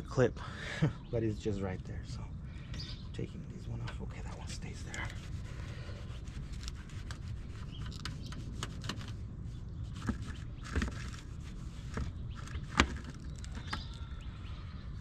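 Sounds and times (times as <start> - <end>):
plastic clicks and scraping: 6.5 - 9.2, 9.9 - 14.1.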